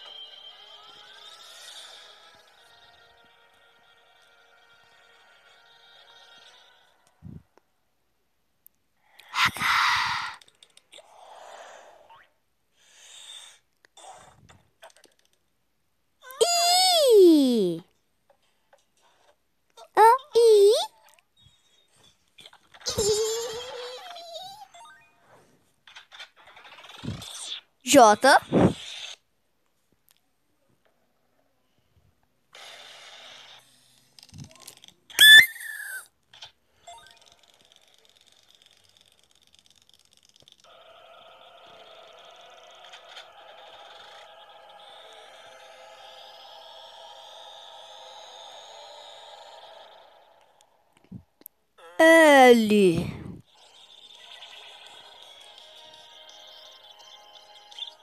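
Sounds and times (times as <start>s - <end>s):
descending whistle-like squeal: 35.2s - 36.1s.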